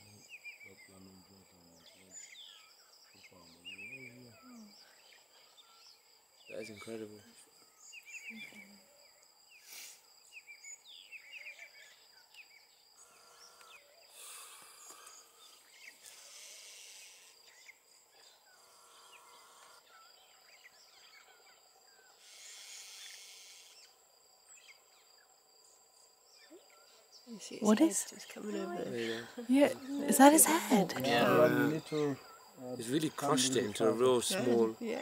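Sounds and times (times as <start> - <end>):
bird chirps: 0.0 - 8.9, 9.5 - 29.5
insects droning: 0.0 - 35.0
hiss: 9.6 - 10.1, 16.0 - 17.4, 22.2 - 23.8.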